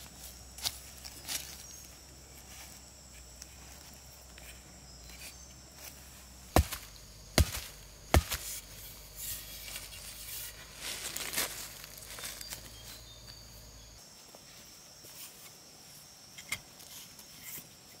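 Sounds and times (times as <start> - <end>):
hatchet chopping bamboo: 6.5 - 8.7.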